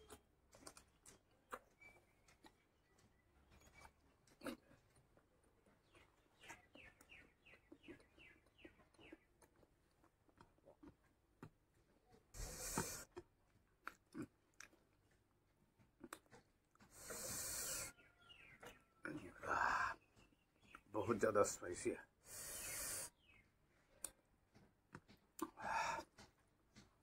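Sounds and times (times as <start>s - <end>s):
person chewing with wet smacks: 0.0s - 17.5s, 23.9s - 27.0s.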